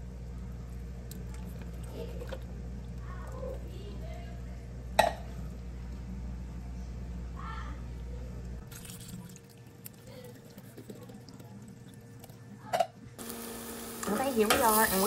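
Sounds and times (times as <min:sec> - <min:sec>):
low steady hum: 0:00.0 - 0:15.0
liquid dripping and trickling: 0:08.6 - 0:12.4.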